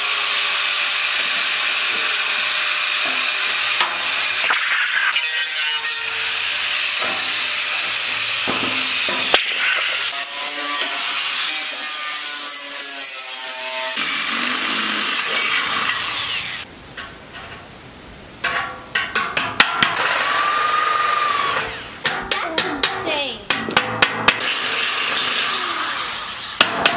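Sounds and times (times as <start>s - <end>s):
angle grinder grinding steel: 0.0s - 16.7s, 24.4s - 26.6s
power drill whining: 24.5s - 26.6s.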